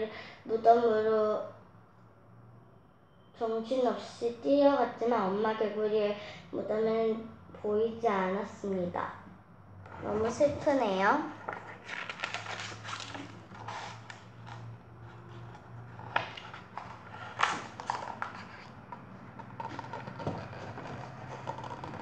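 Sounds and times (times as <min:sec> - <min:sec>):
paper rustling: 0:09.9 - 0:22.0.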